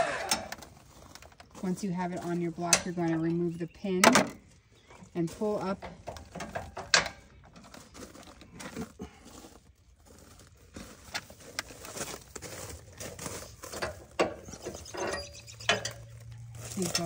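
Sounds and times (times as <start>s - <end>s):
metal hitch hardware clicking: 2.7s - 3.4s, 5.8s - 7.7s, 13.8s - 17.0s.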